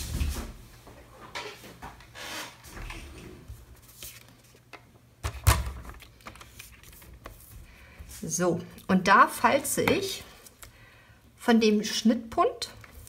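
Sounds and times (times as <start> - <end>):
paper rustling: 3.5 - 7.7.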